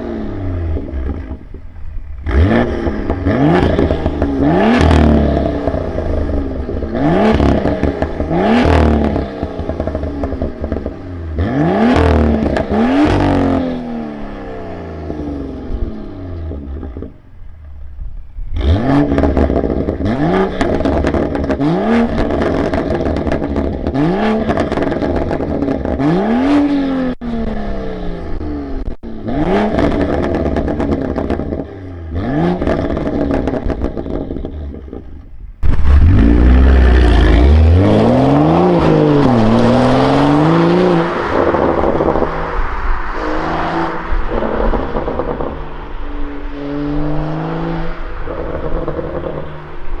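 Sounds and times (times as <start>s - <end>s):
car engine revving: 0.0s - 50.0s
car accelerating away: 2.2s - 17.2s, 35.6s - 50.0s.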